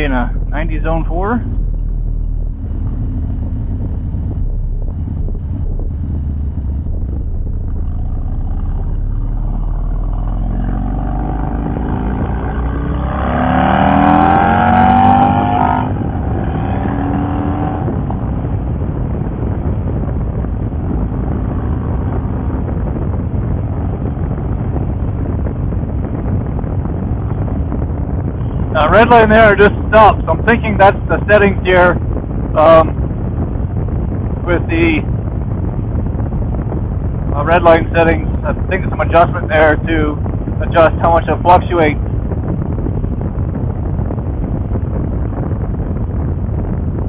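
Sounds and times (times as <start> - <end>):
motorcycle engine revving: 0.0 - 19.4.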